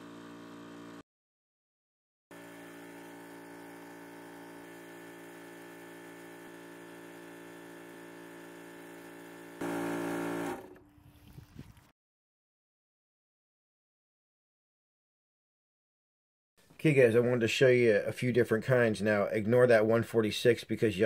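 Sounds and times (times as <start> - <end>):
air compressor humming: 2.3 - 10.9.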